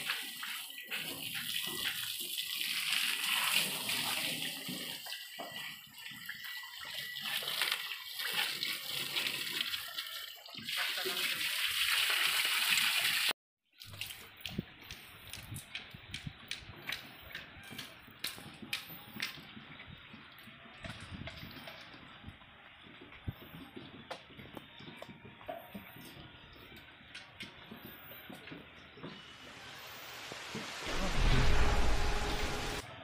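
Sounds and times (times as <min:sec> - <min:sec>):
hose water spraying on glass: 0:00.0 - 0:12.4.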